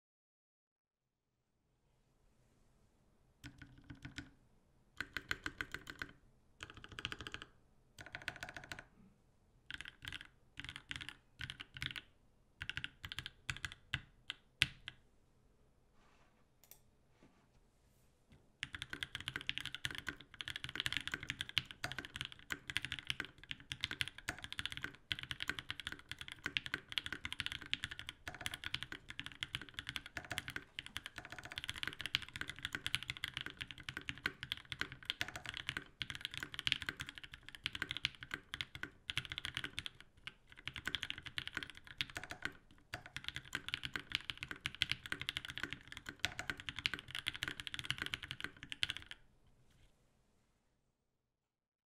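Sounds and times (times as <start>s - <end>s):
fast mechanical keyboard typing: 3.4s - 4.3s, 5.0s - 8.9s, 9.7s - 12.0s, 12.6s - 15.0s, 18.6s - 49.2s.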